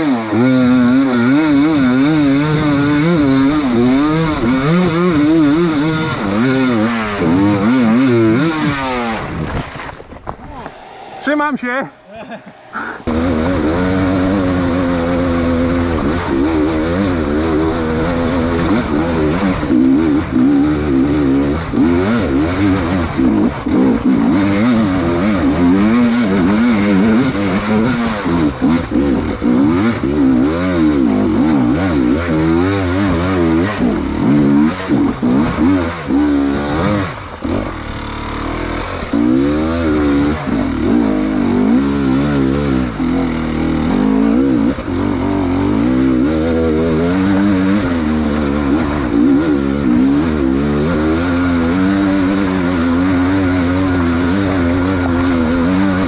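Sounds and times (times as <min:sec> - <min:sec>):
dirt bike engine revving: 0:00.0 - 0:56.0
clattering and scraping from bike: 0:02.7 - 0:10.8.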